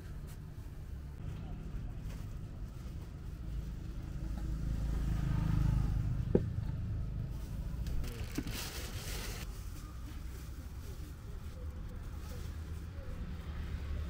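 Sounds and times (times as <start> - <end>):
vehicle rumble: 0.0 - 14.0
plastic bags crinkling: 7.8 - 9.5.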